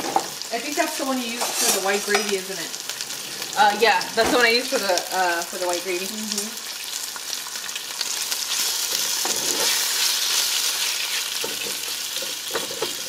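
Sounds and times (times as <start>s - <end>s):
bacon sizzling in oil: 0.0s - 13.0s
utensil scraping pot: 1.3s - 2.3s, 8.9s - 13.0s.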